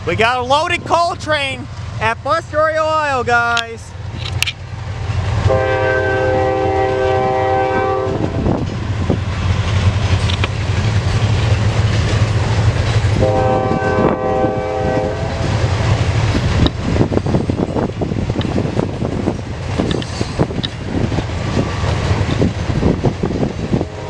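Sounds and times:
freight train rumble and clack: 0.0 - 24.0
locomotive horn blasts: 5.5 - 8.4, 13.2 - 15.5, 23.8 - 24.0.

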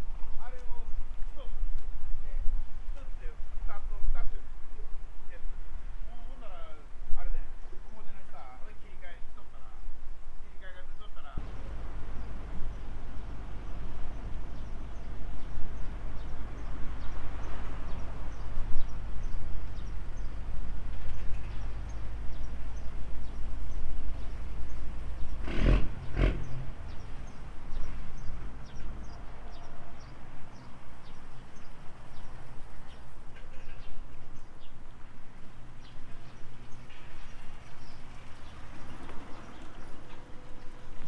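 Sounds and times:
wind rumble on microphone: 0.0 - 8.2, 11.4 - 33.3.

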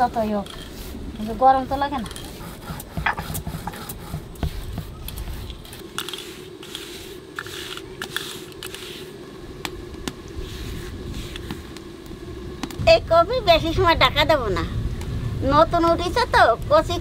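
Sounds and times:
fingers scraping powder on stone: 0.2 - 9.2.

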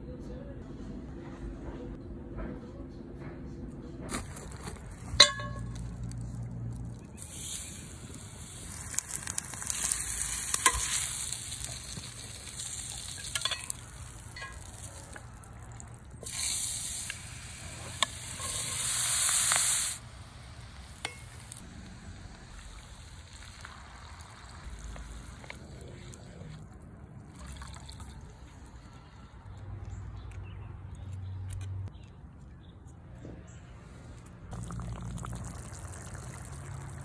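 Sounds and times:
food sizzling in oil: 7.2 - 15.4, 16.2 - 21.6.

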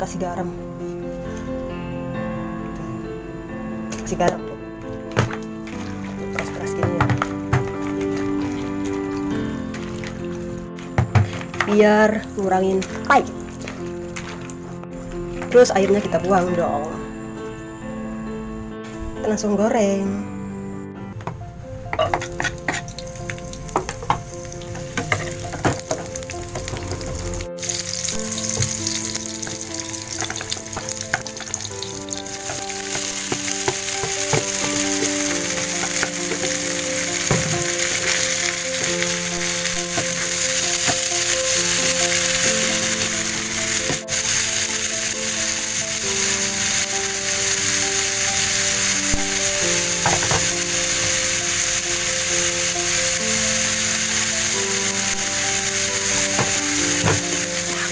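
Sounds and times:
vegetables sizzling in oil: 4.9 - 14.6, 21.9 - 57.9.

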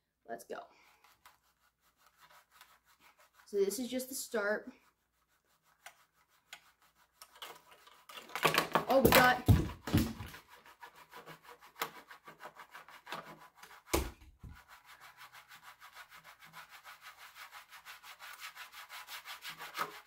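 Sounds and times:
plastic scraping rattle on table: 7.2 - 10.4
plastic bricks clacking: 8.1 - 10.3.

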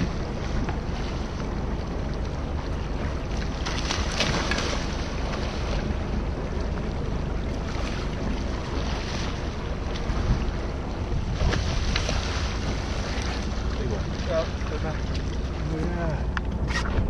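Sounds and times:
boat engine rumble: 0.0 - 17.0
wind buffeting microphone: 0.0 - 17.0
fish splashing at the surface: 3.4 - 5.8.

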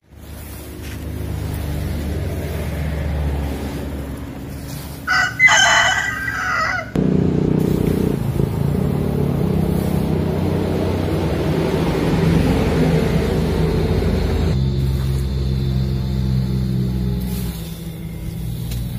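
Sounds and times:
low engine drone: 0.0 - 18.9
rooster crowing: 5.0 - 7.0.

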